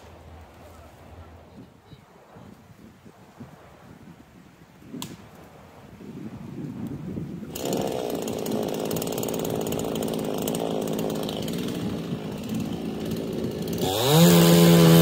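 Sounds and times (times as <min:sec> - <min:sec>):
chainsaw idling: 0:07.5 - 0:15.0
chainsaw revving: 0:07.5 - 0:15.0.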